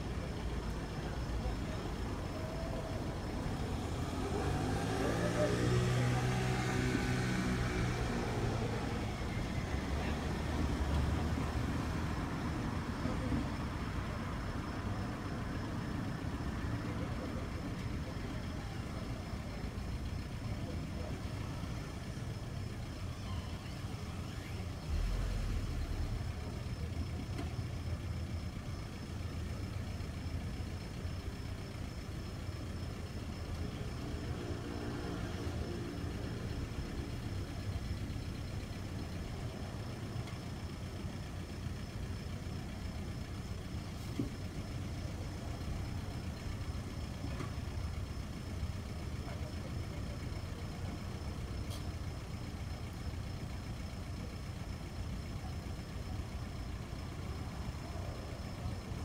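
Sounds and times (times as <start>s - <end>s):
car engine running at low revs: 0.0s - 59.0s.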